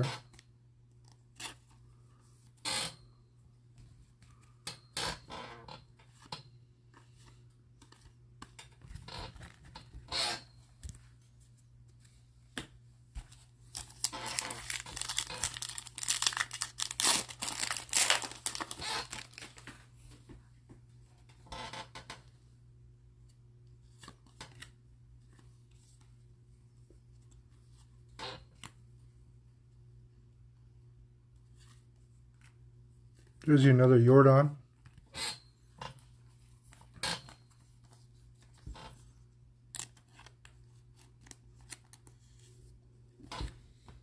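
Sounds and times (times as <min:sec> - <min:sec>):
foil wrapper tearing: 0:13.7 - 0:19.6
foil wrapper rustling: 0:13.7 - 0:19.7.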